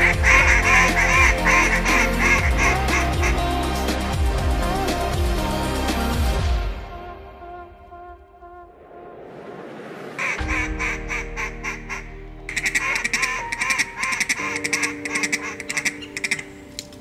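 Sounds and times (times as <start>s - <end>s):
duck quacking: 0.0s - 3.4s, 10.2s - 16.6s
music with held notes: 0.0s - 7.3s, 10.4s - 17.0s.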